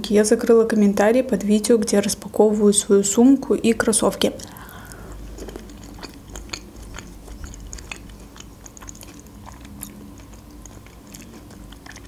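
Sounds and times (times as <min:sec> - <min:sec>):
person chewing food: 0:04.2 - 0:12.0.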